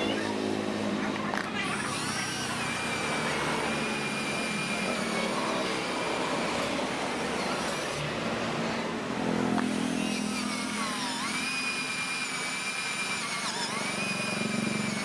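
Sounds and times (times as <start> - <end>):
cordless drill whirring: 0.0 - 8.0, 8.9 - 15.0.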